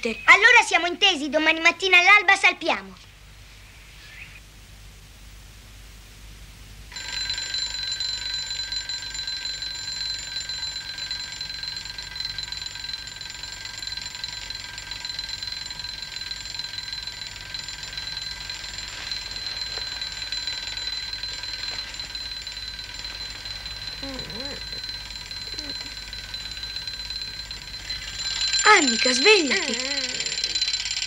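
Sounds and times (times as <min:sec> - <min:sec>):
alarm clock bell ringing: 0:06.9 - 0:31.0.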